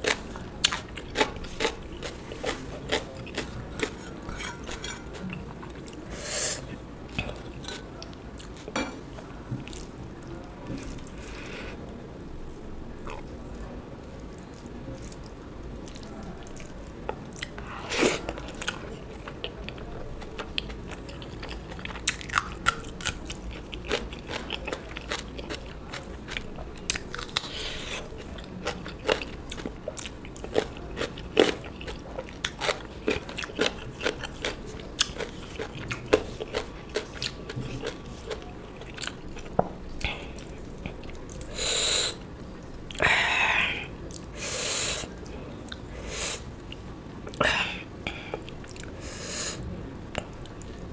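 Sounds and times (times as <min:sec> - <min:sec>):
person chewing crunchy food: 0:00.0 - 0:08.8, 0:17.3 - 0:41.6.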